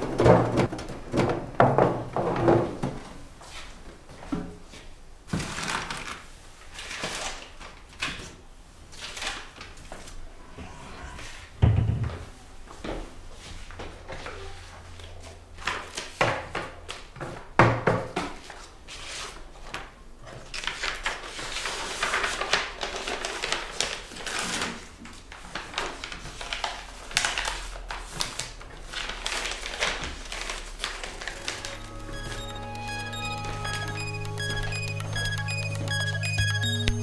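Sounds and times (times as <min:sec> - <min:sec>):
paper rustling and shuffling: 0:03.4 - 0:10.2, 0:13.4 - 0:17.5, 0:18.2 - 0:32.4.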